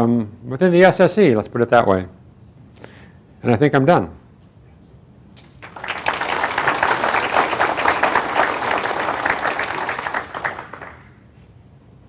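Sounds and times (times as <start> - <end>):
audience applauding: 5.4 - 11.2.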